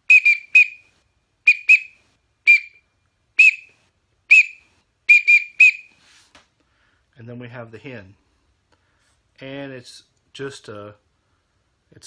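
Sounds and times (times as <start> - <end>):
duck whistle high peeps: 0.0 - 0.9, 1.5 - 2.8, 3.4 - 6.0.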